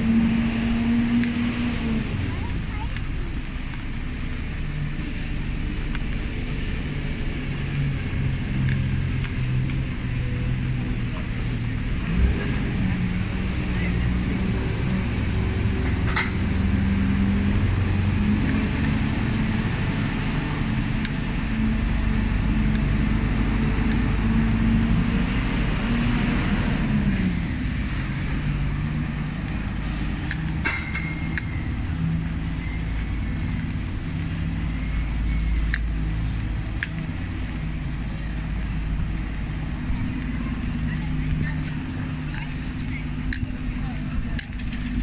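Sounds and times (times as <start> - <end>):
vehicle engine running steadily: 0.0 - 45.0
sharp clicks: 20.5 - 24.6, 28.2 - 45.0.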